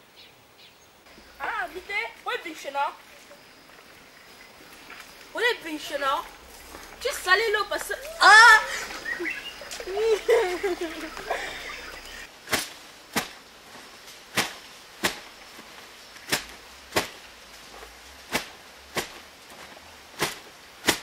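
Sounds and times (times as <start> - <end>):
wet laundry slapping on stone: 4.6 - 21.0.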